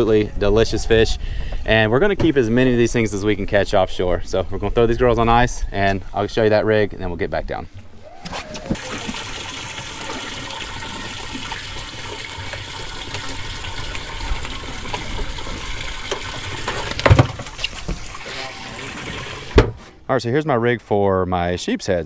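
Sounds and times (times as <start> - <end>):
water rushing into tank: 8.6 - 19.8.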